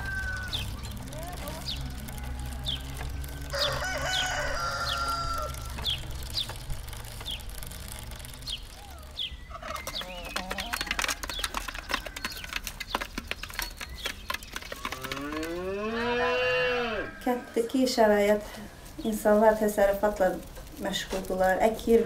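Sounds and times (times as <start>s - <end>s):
chickens pecking at a dish: 0.0s - 15.8s
calf mooing: 15.2s - 17.2s.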